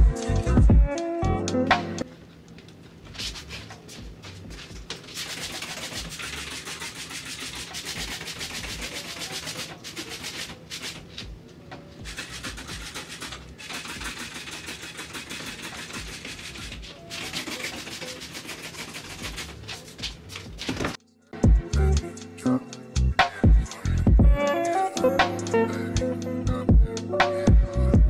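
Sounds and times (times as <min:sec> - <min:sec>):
scrubbing on tile: 0:03.1 - 0:11.3, 0:12.0 - 0:21.0.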